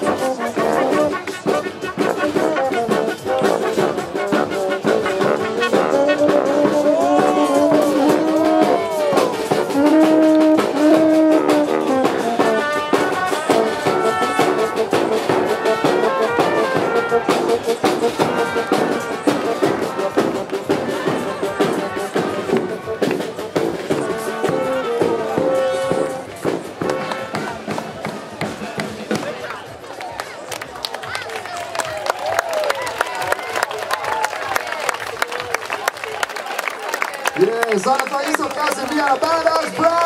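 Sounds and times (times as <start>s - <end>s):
bass drum beat: 0.0s - 29.4s
street brass band playing: 0.0s - 40.0s.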